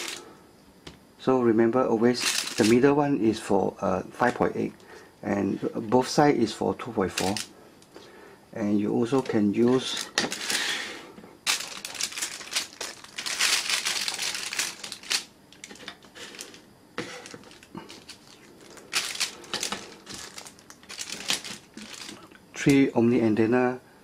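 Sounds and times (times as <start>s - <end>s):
plastic bags crinkling: 0.0s - 0.2s, 2.2s - 2.8s, 7.1s - 7.5s, 9.2s - 10.6s, 11.4s - 22.3s
plastic parts knocking: 18.9s - 22.2s.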